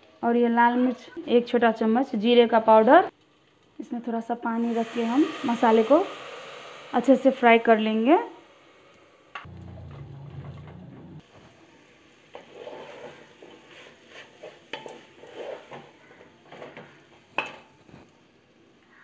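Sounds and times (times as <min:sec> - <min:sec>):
low hum: 0:09.3 - 0:11.2
spatula scraping in a pot: 0:12.2 - 0:17.0.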